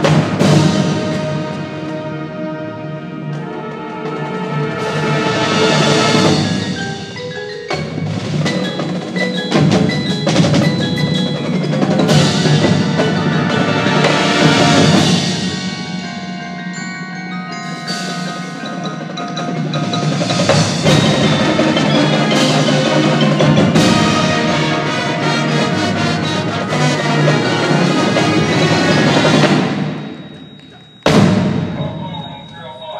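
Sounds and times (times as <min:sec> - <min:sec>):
drums: 0:00.0 - 0:32.9
mallet keyboards ringing: 0:06.3 - 0:25.7, 0:26.4 - 0:32.9
sustained band chords: 0:07.8 - 0:31.8.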